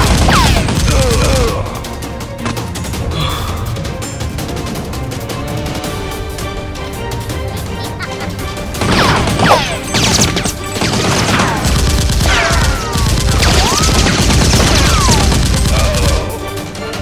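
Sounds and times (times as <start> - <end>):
rapid gunfire: 0.0 - 3.0, 8.6 - 17.0
background music: 0.0 - 17.0.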